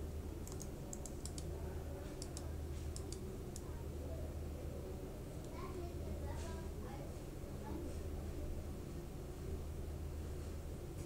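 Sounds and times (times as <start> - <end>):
steady low hum: 0.0 - 11.0
mouse and keyboard clicks: 0.4 - 1.5, 2.2 - 3.7.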